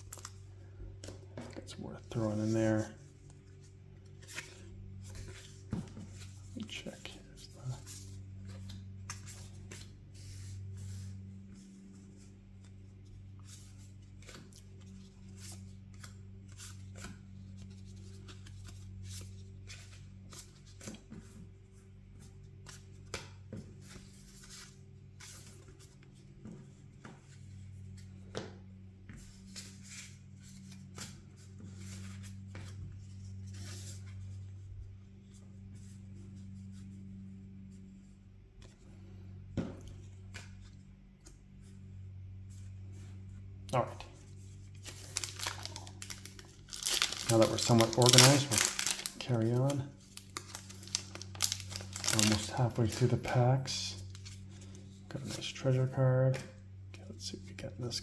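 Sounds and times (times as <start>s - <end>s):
steady low hum: 0.0s - 58.0s
playing cards rustling and tapping: 22.6s - 34.1s, 44.8s - 53.2s.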